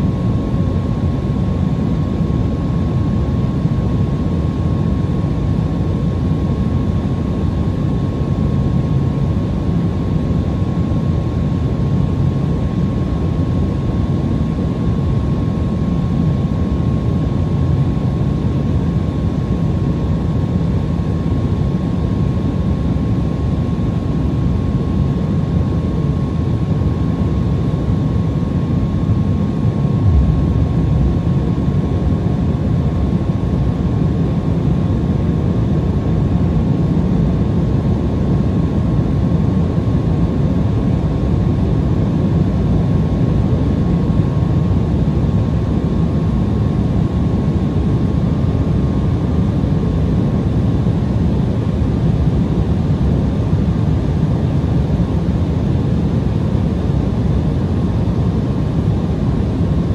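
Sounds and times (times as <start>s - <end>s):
thin steady whine: 0.0s - 59.9s
jet cabin roar: 24.4s - 36.2s.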